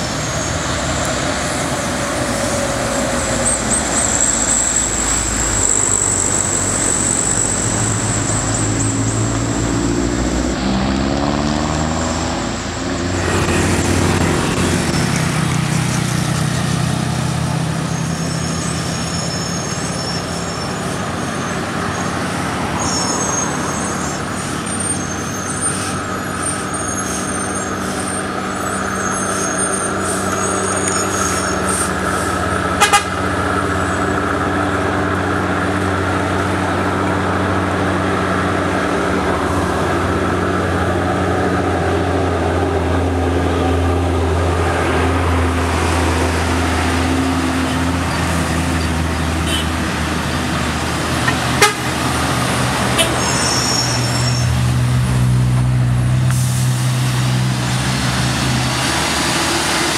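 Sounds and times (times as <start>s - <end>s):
truck diesel engines droning: 0.0s - 59.9s.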